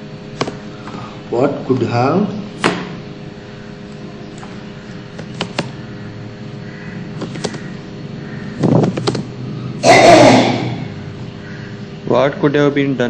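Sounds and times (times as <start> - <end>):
steady low hum: 0.0 - 13.0
loud breathy noise: 0.7 - 1.3
keyboard keys clicking: 4.3 - 5.8, 7.2 - 7.7, 8.6 - 9.3.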